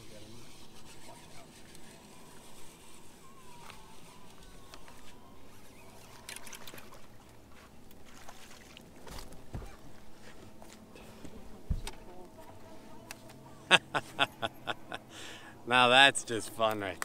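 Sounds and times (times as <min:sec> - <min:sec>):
water and boat sounds: 0:00.0 - 0:17.0
fish splashing: 0:05.5 - 0:09.4.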